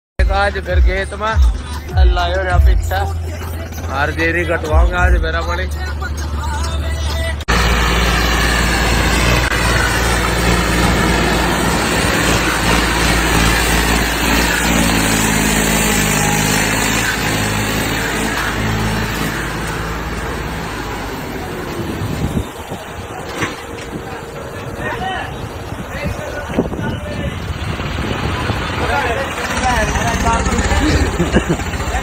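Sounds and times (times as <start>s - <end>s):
heavy vehicle engine running: 2.5s - 32.0s.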